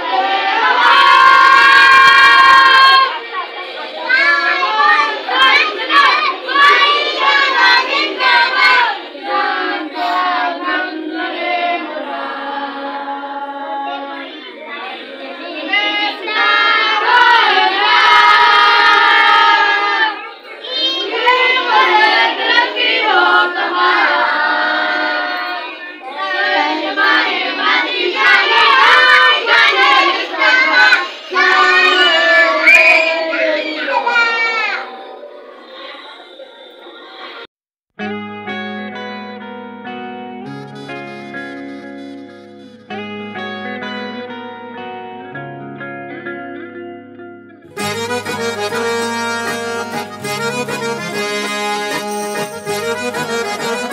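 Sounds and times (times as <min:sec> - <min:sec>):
children singing: 0:00.0 - 0:37.5.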